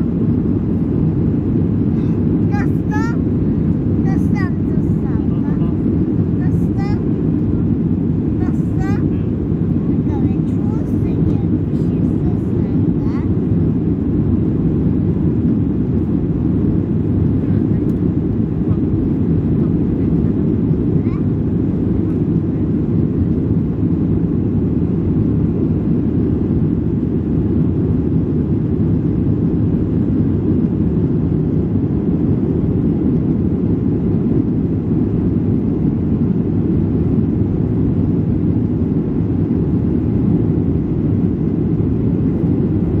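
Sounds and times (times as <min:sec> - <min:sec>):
jet airliner cabin roar: 0:00.0 - 0:43.0.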